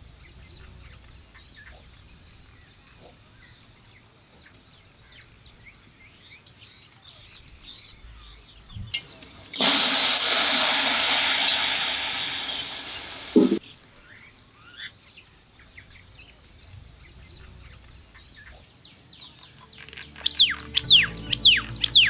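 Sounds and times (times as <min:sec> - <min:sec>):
water hissing on embers: 0:09.5 - 0:13.6
faint bird chirps: 0:11.4 - 0:22.0.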